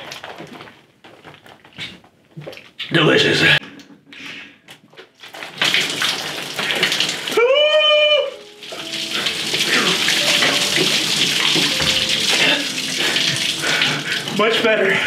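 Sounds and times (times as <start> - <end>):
milk pouring and splashing: 4.9 - 7.4, 8.4 - 14.9.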